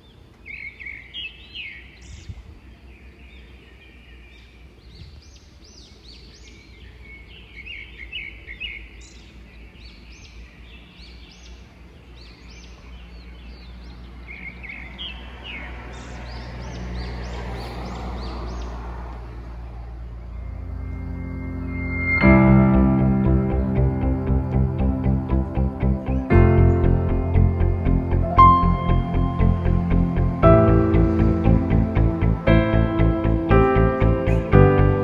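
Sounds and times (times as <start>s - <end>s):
birds chirping: 0.0s - 35.0s
low background rumble: 19.7s - 35.0s.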